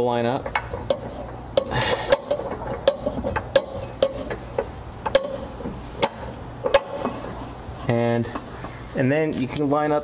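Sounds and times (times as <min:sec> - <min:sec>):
floor jack pumping clicks: 0:00.4 - 0:07.2.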